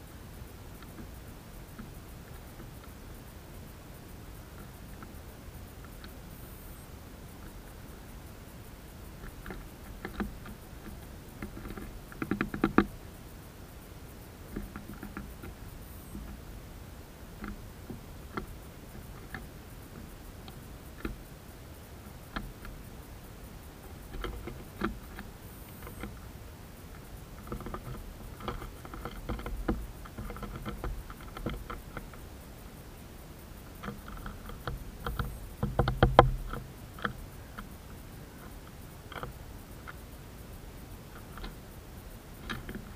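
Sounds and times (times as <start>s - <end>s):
bird pecking on wooden tray: 27.4s - 32.2s, 33.8s - 38.5s.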